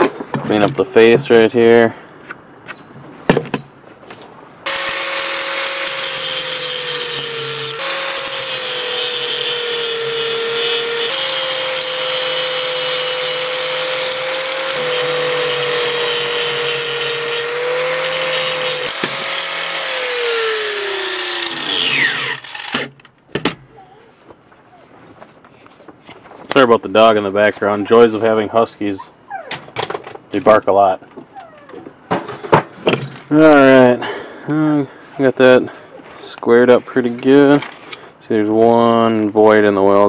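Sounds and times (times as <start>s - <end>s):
angle grinder grinding metal: 4.7s - 23.0s.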